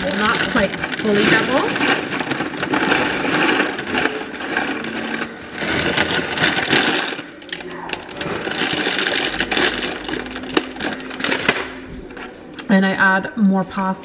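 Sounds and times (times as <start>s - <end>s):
dry pasta rattling into box: 0.0s - 11.8s
plastic bag crinkling: 0.0s - 12.3s.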